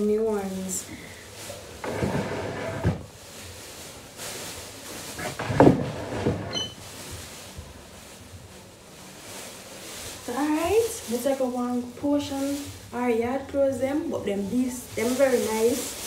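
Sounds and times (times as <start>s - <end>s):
creak or scrape: 1.8s - 3.0s
household knocks and handling: 5.1s - 6.7s.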